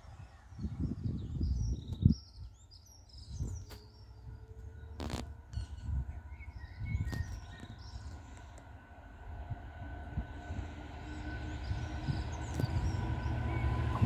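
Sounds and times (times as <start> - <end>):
wind buffeting microphone: 0.1 - 14.0
small birds chirping: 6.3 - 8.4.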